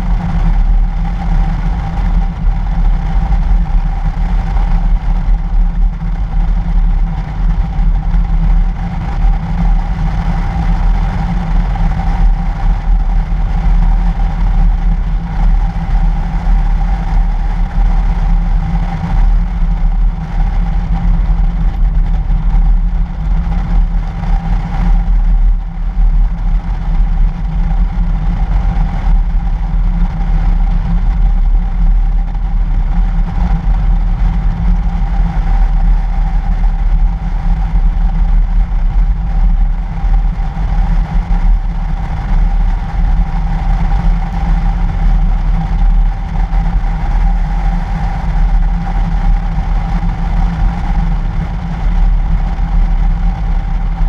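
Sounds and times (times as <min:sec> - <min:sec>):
car engine and tyres rumbling: 0:00.0 - 0:54.0.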